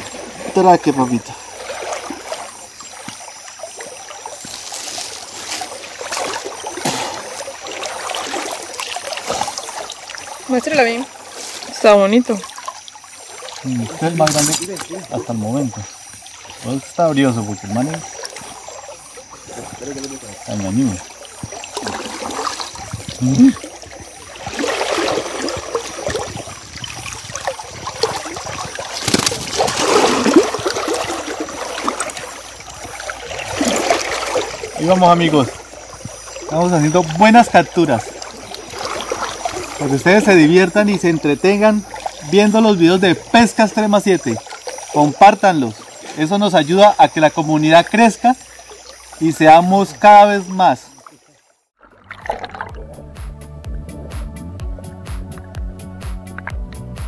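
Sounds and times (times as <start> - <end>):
river water trickling: 0.0 - 57.0
fish splashing at surface: 1.3 - 15.2, 17.9 - 40.4, 50.9 - 53.1.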